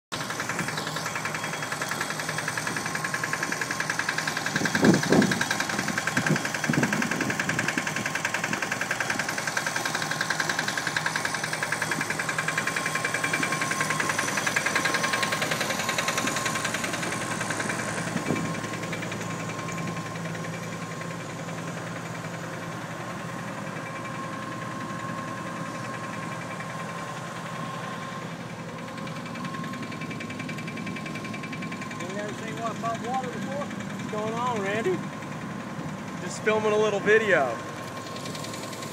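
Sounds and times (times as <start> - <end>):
engine-driven pump running: 0.1 - 38.9.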